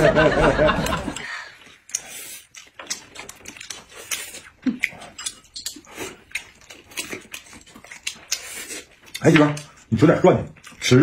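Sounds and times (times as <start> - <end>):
chewing and mouth smacking: 1.0 - 11.0
chopsticks clicking against bowls: 1.8 - 9.9.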